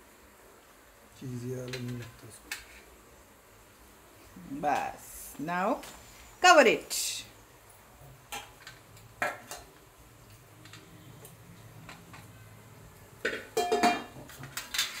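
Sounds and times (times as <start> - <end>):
metal plate and grater clinking: 13.3 - 15.0.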